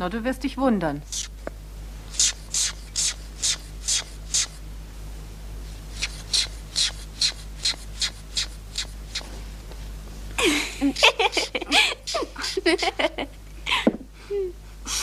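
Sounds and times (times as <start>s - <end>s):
perfume atomizer spraying: 1.0s - 1.5s, 2.1s - 4.6s, 5.9s - 9.3s, 10.9s - 13.0s.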